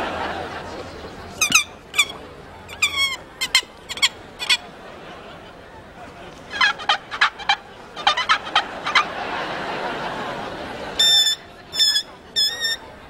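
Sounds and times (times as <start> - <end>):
warbling gobbling: 1.3 - 4.7, 6.4 - 12.9.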